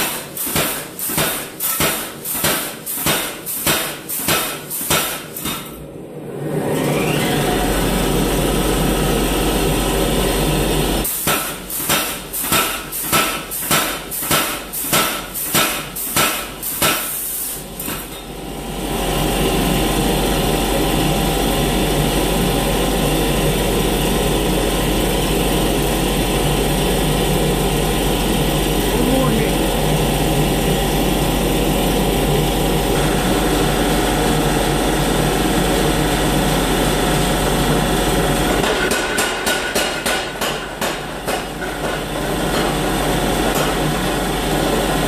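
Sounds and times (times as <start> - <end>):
power hammer striking hot steel: 0.0 - 5.8, 11.0 - 18.2, 38.6 - 42.9, 43.5 - 43.9
roaring workshop noise: 0.0 - 45.0.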